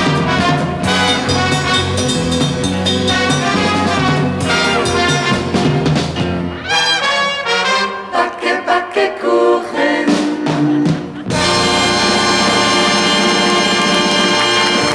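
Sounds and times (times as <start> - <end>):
orchestra brass chords: 0.0 - 8.3, 11.2 - 14.9.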